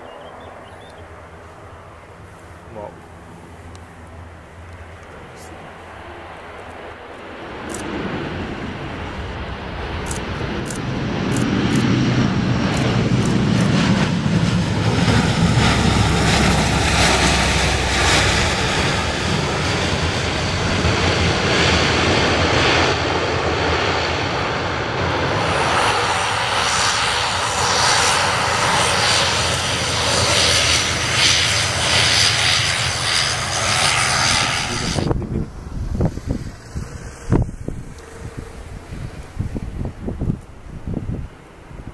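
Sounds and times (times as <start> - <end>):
turboprop engines droning: 0.0 - 41.9.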